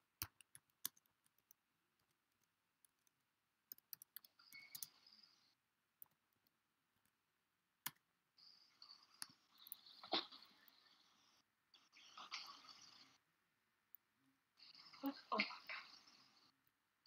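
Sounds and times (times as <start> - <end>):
keyboard typing clicks: 0.2 - 5.3.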